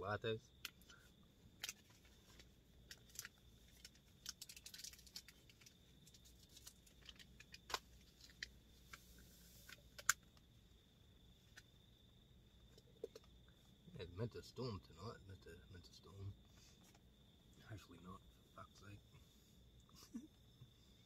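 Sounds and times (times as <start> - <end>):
hands rustling coffee sachet: 1.6 - 10.2.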